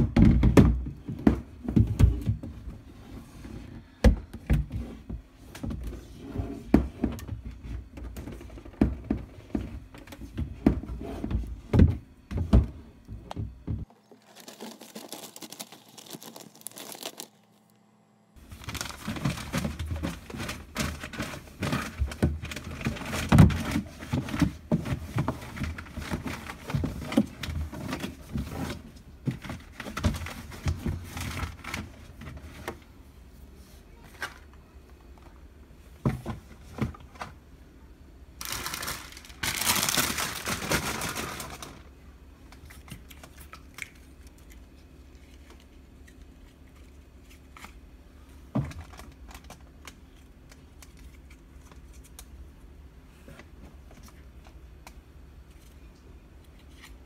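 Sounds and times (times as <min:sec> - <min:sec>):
newspaper rustling and crinkling: 0:13.9 - 0:17.4, 0:18.4 - 0:28.7, 0:38.4 - 0:41.8.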